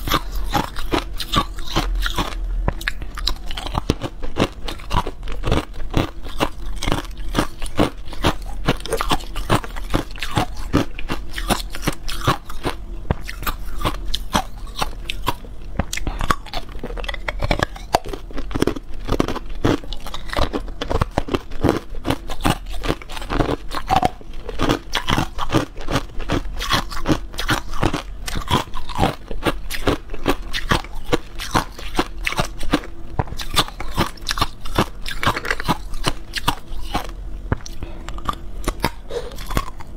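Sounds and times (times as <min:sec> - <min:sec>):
ice cubes being chewed: 0:00.0 - 0:39.9.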